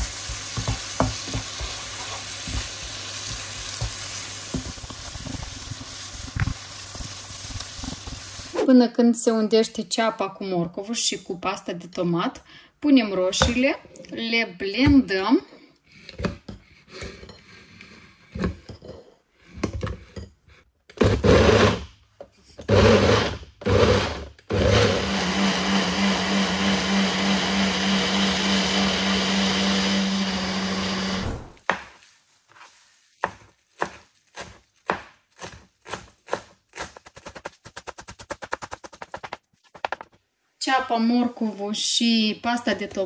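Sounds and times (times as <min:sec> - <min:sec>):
electric blender running: 0:21.2 - 0:21.8, 0:22.6 - 0:31.6.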